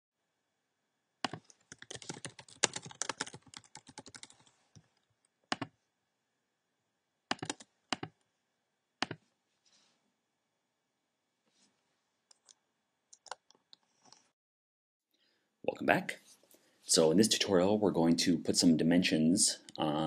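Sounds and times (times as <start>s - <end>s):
typing on computer keyboard: 1.2s - 4.5s, 5.5s - 5.7s, 7.3s - 8.2s.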